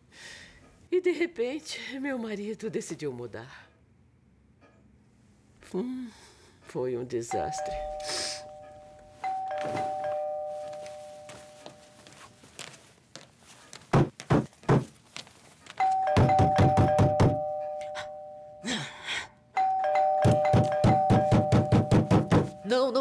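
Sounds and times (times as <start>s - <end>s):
two-tone doorbell chime: 7.3s - 12.1s, 15.8s - 18.7s, 19.6s - 22.7s
fast pounding on door: 16.1s - 17.4s, 20.2s - 22.6s
knocks on door: 16.1s - 17.4s, 20.2s - 22.6s.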